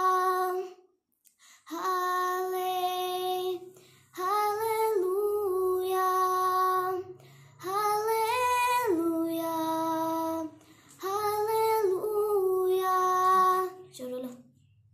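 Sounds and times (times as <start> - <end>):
girl singing unaccompanied: 0.0 - 0.9, 1.6 - 14.6.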